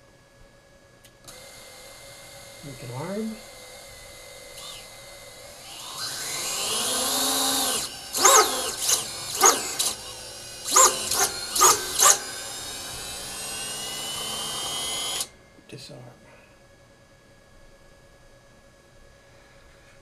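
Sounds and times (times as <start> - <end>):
quadcopter motors whining: 1.3 - 15.4.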